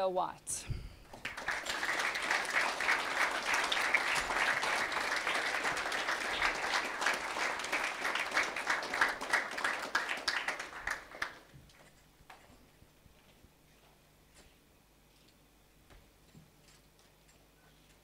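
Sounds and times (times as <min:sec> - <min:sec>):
audience applauding: 0:01.1 - 0:11.5.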